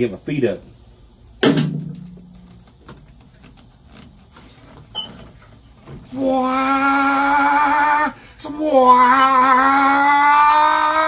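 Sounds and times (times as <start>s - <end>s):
person singing with vibrato: 6.1s - 11.0s.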